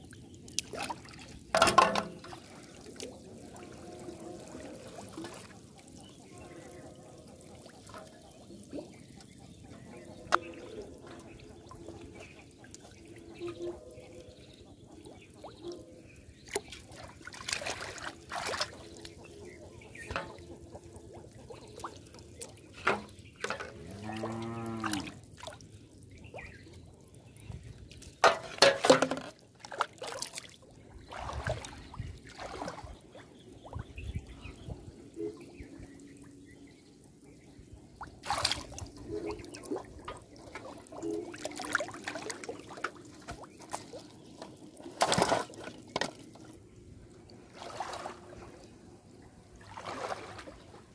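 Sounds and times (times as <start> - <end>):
water splashing and dripping: 0.0 - 50.9.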